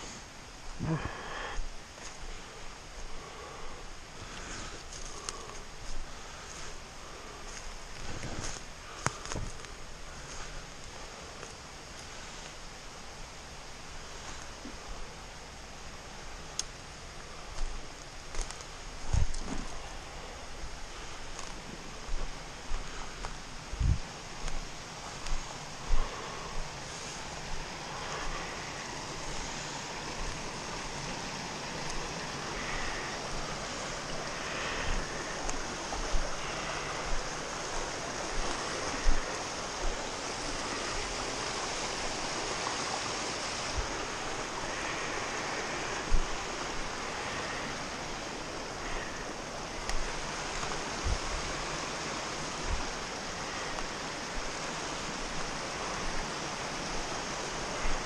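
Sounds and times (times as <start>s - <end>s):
brook rushing over rocks: 23.8s - 58.0s.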